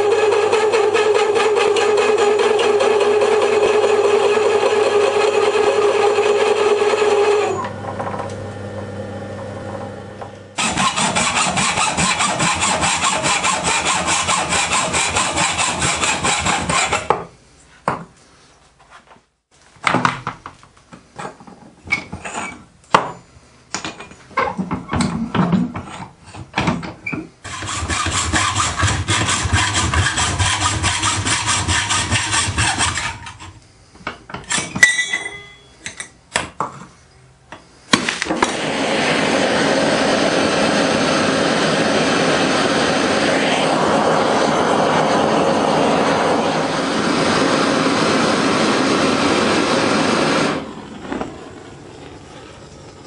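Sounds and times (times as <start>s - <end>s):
gas torch burner rushing: 0.0s - 17.2s, 27.4s - 33.6s, 37.9s - 53.0s
rasping metalwork: 10.6s - 17.1s, 27.4s - 33.5s.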